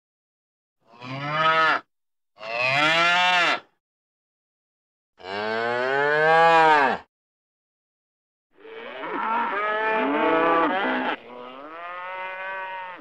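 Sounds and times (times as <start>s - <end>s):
cattle mooing: 8.6s - 13.0s.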